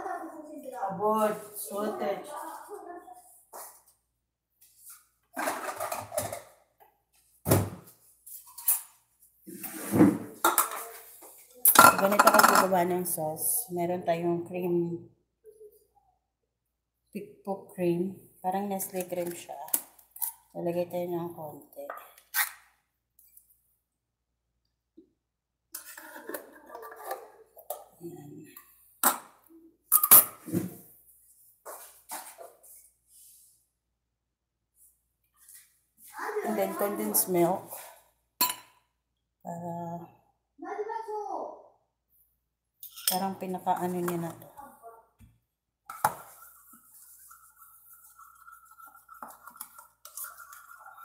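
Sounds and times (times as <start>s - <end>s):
dishes clattering: 5.4s - 6.6s, 10.0s - 11.0s, 11.7s - 12.8s, 25.8s - 28.0s, 38.4s - 38.8s.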